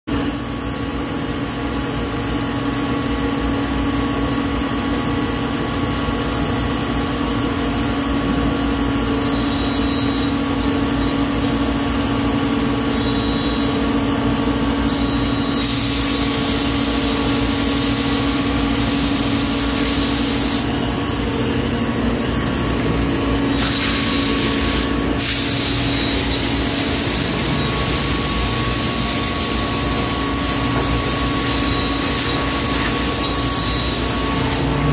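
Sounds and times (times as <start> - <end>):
machinery humming: 0.1 - 34.9
loud hiss: 14.9 - 20.7, 23.5 - 34.9.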